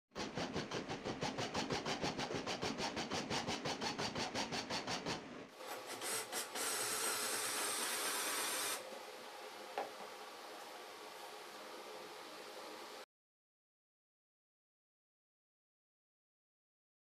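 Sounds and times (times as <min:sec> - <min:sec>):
cordless drill boring into wood: 0:05.9 - 0:08.8.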